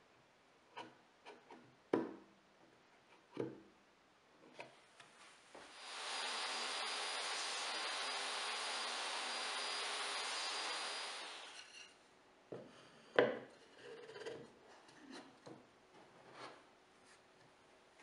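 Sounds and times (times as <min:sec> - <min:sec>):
table saw cutting wood: 0:05.7 - 0:11.9.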